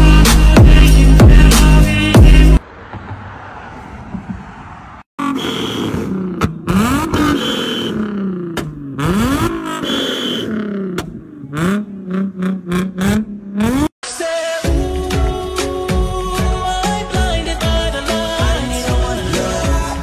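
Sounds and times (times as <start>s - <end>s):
car engine revving: 2.1s - 14.0s.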